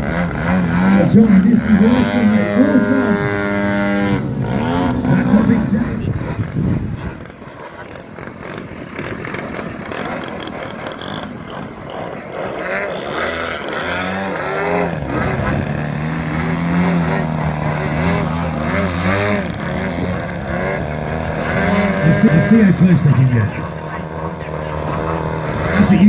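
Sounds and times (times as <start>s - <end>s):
model plane engines and propellers: 0.0s - 26.0s.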